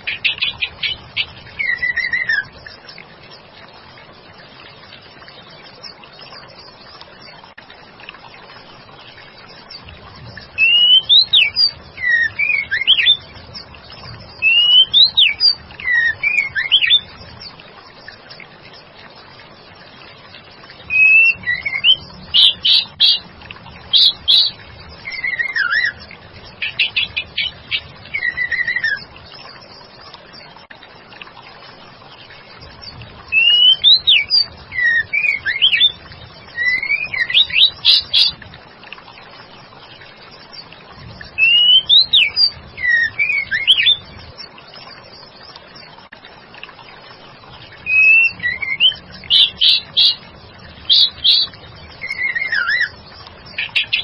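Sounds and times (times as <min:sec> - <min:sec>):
bird whistling and ticking: 0:00.0 - 0:02.5, 0:10.6 - 0:13.2, 0:14.4 - 0:17.1, 0:20.9 - 0:23.2, 0:24.0 - 0:26.0, 0:26.6 - 0:29.1, 0:33.3 - 0:36.0, 0:36.6 - 0:38.4, 0:41.4 - 0:44.0, 0:47.9 - 0:50.2, 0:50.9 - 0:53.0
trickle of running water: 0:00.0 - 0:54.0.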